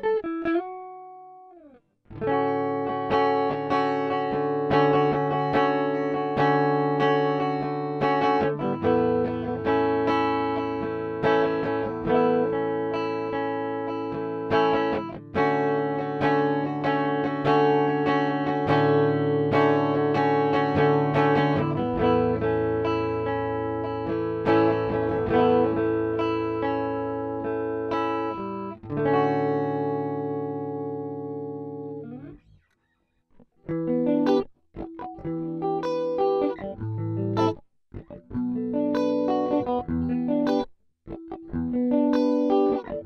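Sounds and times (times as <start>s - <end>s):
clean electric guitar chords: 0.0s - 32.4s, 33.7s - 43.0s.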